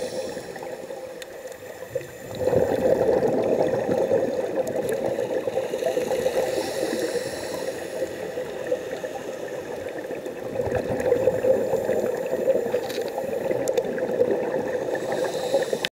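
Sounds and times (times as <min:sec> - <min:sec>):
underwater bubbles gurgling: 0:00.0 - 0:15.9
faint clicks: 0:01.1 - 0:02.1, 0:12.7 - 0:14.0.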